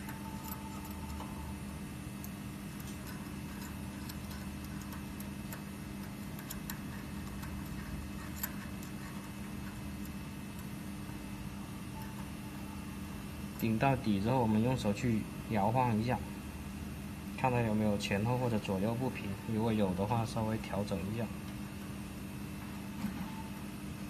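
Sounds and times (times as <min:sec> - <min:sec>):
hex key metallic clicks: 0:00.0 - 0:10.9
machine hum: 0:00.0 - 0:24.0.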